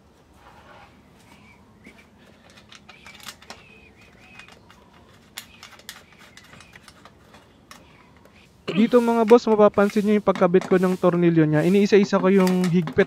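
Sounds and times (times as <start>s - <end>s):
metallic clicks and taps: 2.4s - 8.4s.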